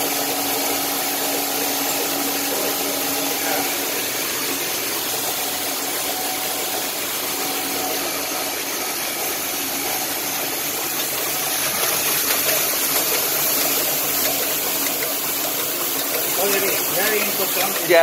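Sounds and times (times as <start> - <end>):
envelope machine whirring: 0.0 - 18.0.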